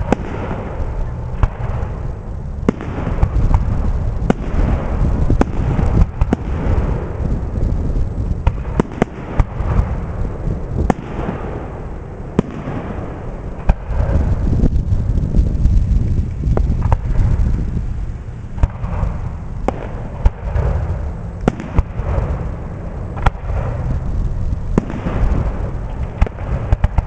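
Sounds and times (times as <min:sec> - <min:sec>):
fireworks bangs: 0:00.0 - 0:27.0
fireworks crackling: 0:00.0 - 0:27.0
steady low rumble: 0:00.0 - 0:27.0.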